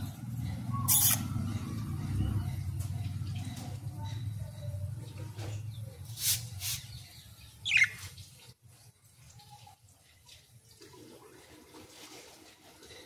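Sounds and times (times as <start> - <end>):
budgerigar chirp: 0.7 - 1.3, 7.6 - 8.0.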